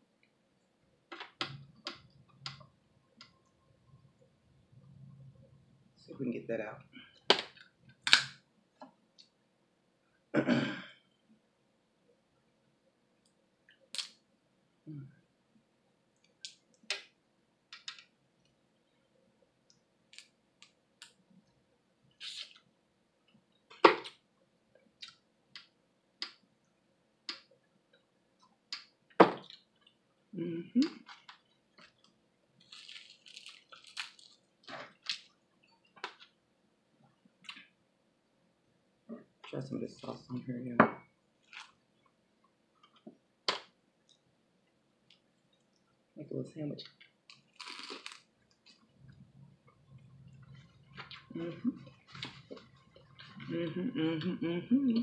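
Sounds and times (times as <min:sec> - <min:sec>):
mouth clicks: 0:22.2 - 0:22.6
wet squishing and crackling: 0:30.8 - 0:36.3.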